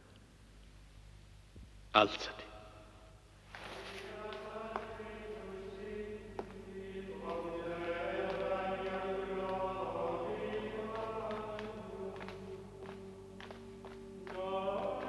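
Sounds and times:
voices singing a chant: 0:03.6 - 0:15.0.

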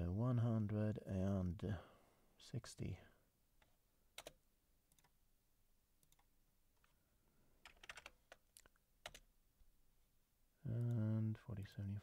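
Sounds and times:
keyboard key presses: 0:07.6 - 0:09.2.

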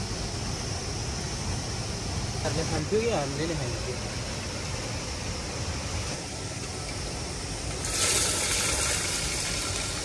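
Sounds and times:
fish sizzling in hot oil: 0:06.0 - 0:10.0.

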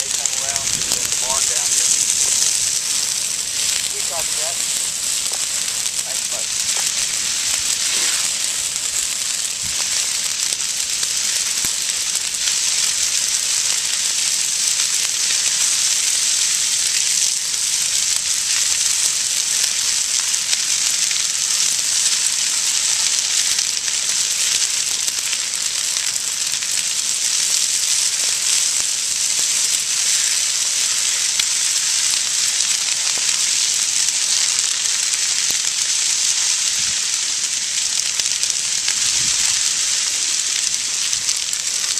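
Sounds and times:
grass fire crackling and hissing: 0:00.0 - 0:41.9.

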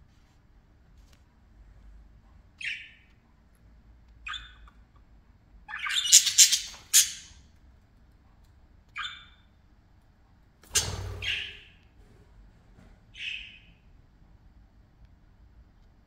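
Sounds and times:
budgerigars chirping: 0:02.6 - 0:03.1, 0:04.2 - 0:04.8, 0:05.7 - 0:07.4, 0:09.0 - 0:09.4, 0:10.8 - 0:11.8, 0:13.2 - 0:13.8
budgerigar harsh squawking: 0:05.7 - 0:07.4.

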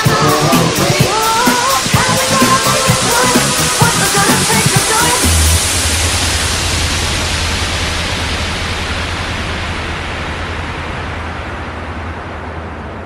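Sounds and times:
deep bass drone: 0:00.0 - 0:13.0
synthesized white noise: 0:00.0 - 0:13.0.

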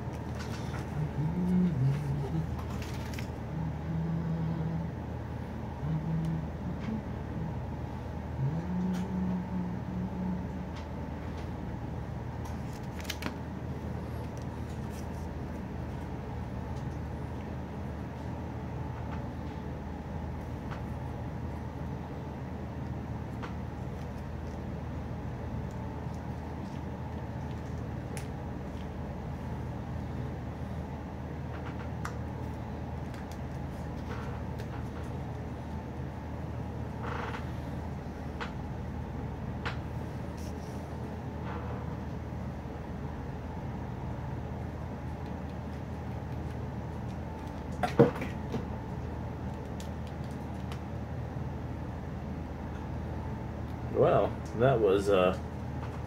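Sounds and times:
low room hum: 0:00.0 - 0:56.0.

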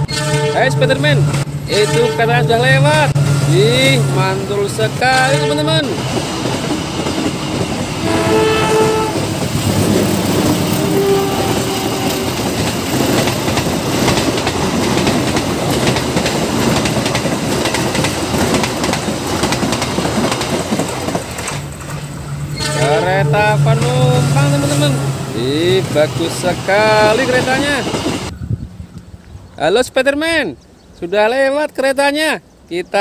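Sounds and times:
train horn: 0:00.0 - 0:01.1, 0:01.7 - 0:02.4, 0:05.1 - 0:05.8, 0:08.0 - 0:09.5, 0:10.1 - 0:12.7, 0:22.6 - 0:25.0
train wheels clattering over rails: 0:03.1 - 0:08.2, 0:08.8 - 0:22.8, 0:26.1 - 0:28.3.

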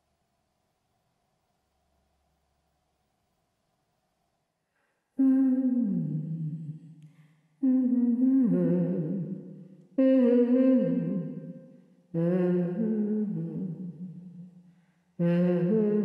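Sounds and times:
person humming a melody: 0:05.2 - 0:06.8, 0:07.6 - 0:14.4, 0:15.2 - 0:16.0.

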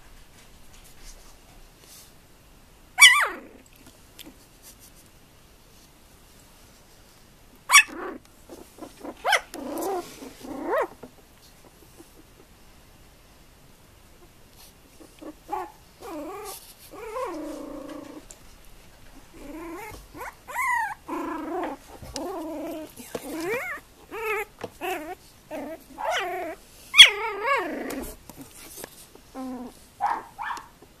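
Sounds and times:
puppies whimpering: 0:19.4 - 0:28.0.

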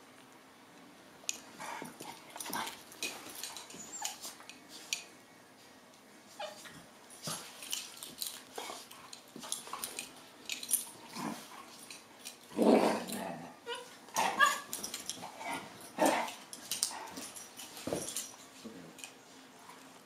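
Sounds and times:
paws and mouths clicking and scuffling: 0:01.3 - 0:05.1, 0:06.6 - 0:13.3, 0:14.2 - 0:20.0
dogs yipping and whimpering: 0:03.6 - 0:04.4, 0:13.6 - 0:14.8.

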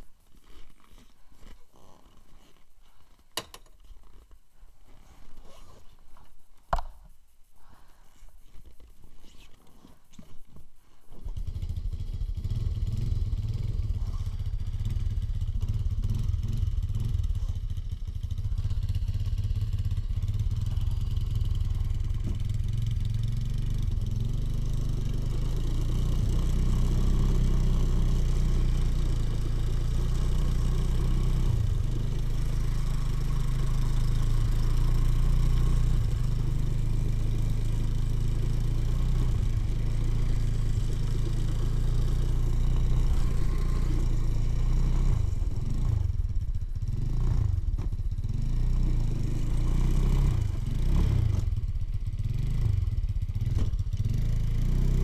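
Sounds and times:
motorcycle engine running: 0:11.2 - 0:55.0.

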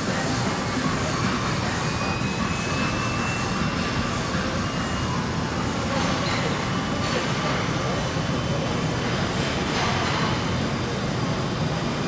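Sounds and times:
faint high whine: 0:00.0 - 0:08.8
machinery noise: 0:00.0 - 0:11.3.

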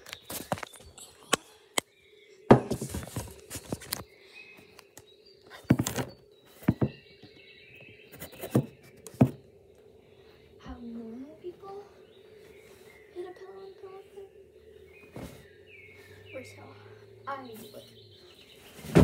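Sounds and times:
faint steady hum: 0:00.0 - 0:19.0
phone jostled thumps and rustling: 0:02.5 - 0:04.1, 0:05.6 - 0:07.4.

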